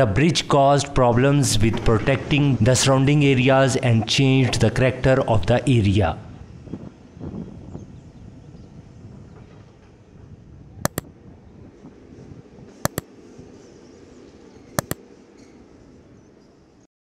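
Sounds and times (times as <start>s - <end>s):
double mouse clicks: 10.9s - 11.1s, 14.8s - 15.0s.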